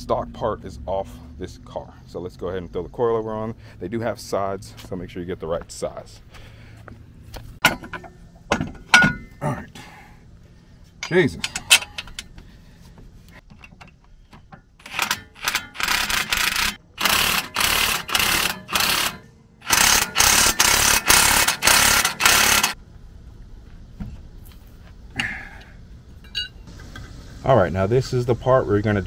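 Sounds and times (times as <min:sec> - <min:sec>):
impact wrench hammering: 0:14.8 - 0:22.8.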